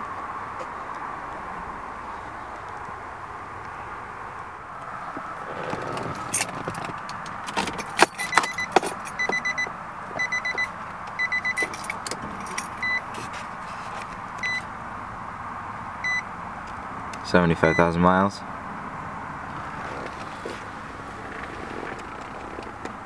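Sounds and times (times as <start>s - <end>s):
keys jangling: 7.5s - 9.4s, 11.5s - 13.0s
car warning chime beeping: 7.9s - 13.1s, 14.4s - 14.7s, 16.0s - 16.3s, 17.6s - 18.0s.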